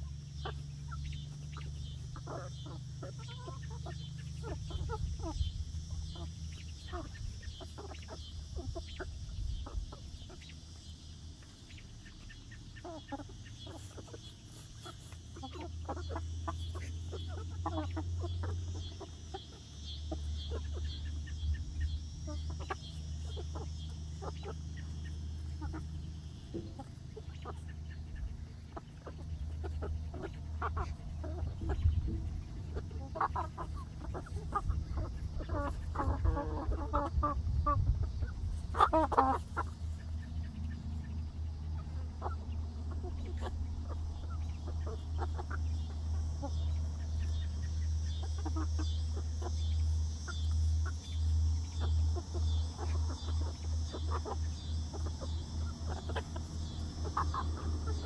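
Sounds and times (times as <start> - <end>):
hens clucking softly: 0.0 - 58.0
steady low rumble: 18.2 - 58.0.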